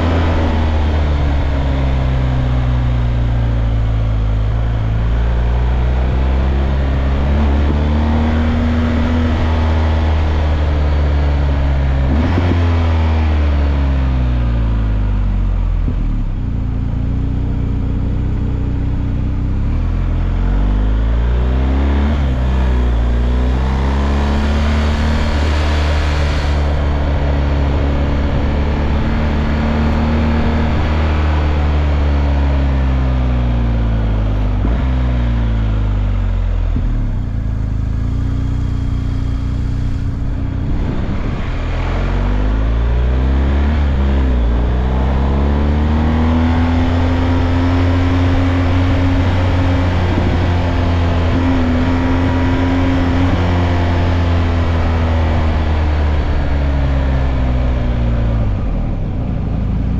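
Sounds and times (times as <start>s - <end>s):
motorcycle engine: 0.0s - 59.9s
wind rush: 39.8s - 44.7s.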